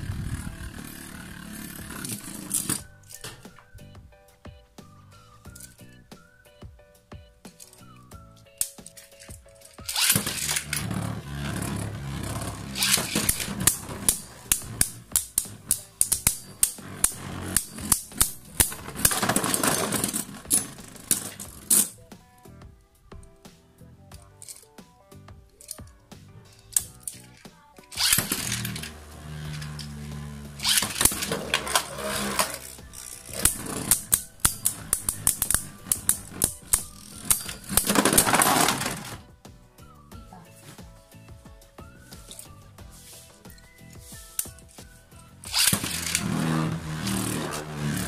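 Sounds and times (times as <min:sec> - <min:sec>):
spinning tops grinding scrapes: 0:00.0 - 0:02.9, 0:08.8 - 0:22.0, 0:26.6 - 0:39.3, 0:45.4 - 0:48.0
spinning tops clacking: 0:08.6 - 0:22.0, 0:26.6 - 0:39.2, 0:45.4 - 0:48.0
plastic pieces rattling and skittering: 0:08.9 - 0:22.0, 0:26.6 - 0:39.3, 0:45.5 - 0:48.0.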